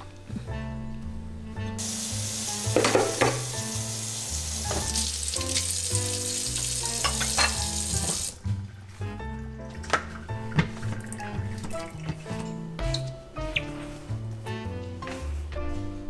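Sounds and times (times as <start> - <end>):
soft background music: 0.0 - 16.0
faucet running into sink: 1.8 - 8.6
dishes being washed: 1.8 - 13.1
bowls clinking together: 6.9 - 8.2.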